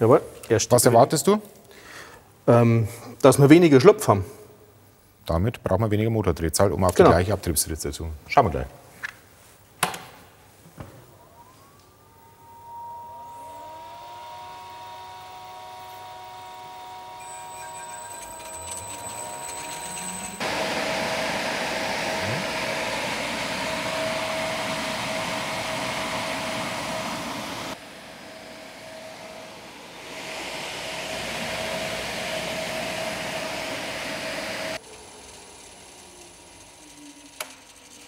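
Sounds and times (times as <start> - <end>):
fan motor whine: 10.8 - 38.0
fan air rushing: 20.4 - 36.2.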